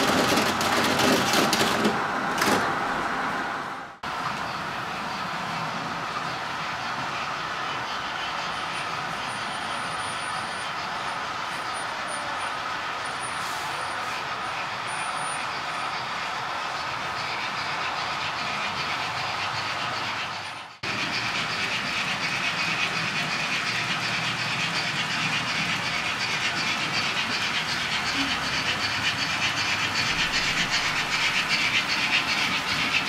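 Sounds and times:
model train wheels rolling on track: 0.0s - 3.4s, 4.0s - 33.0s.

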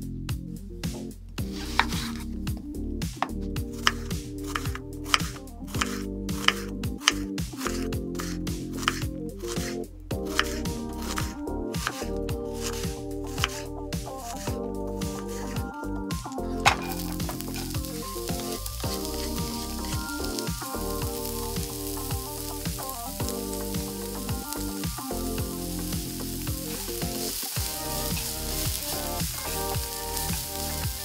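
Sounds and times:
background music: 0.0s - 31.0s
onion sizzling in oil: 3.8s - 9.0s, 10.3s - 14.5s, 16.7s - 31.0s
spatula stirring in a pan: 3.8s - 15.6s, 16.7s - 31.0s.

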